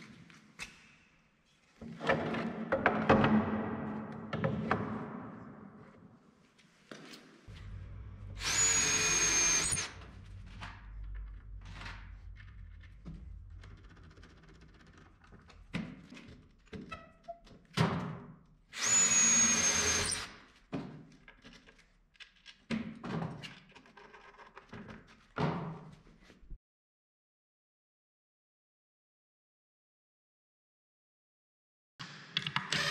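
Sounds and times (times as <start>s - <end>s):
drill driving screws into wood: 8.4s - 9.9s, 18.7s - 20.4s, 32.4s - 32.9s.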